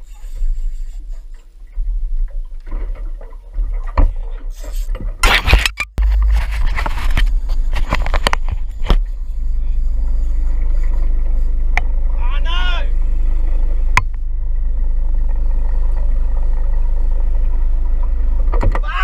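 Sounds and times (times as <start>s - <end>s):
steady low rumble: 0.0s - 19.0s
knocks and scrapes on camera housing: 5.0s - 9.1s.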